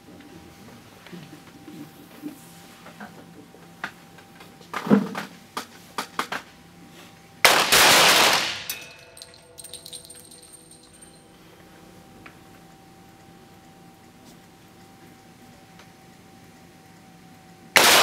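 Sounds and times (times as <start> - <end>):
pistol shots: 7.4 - 9.0, 17.8 - 18.0.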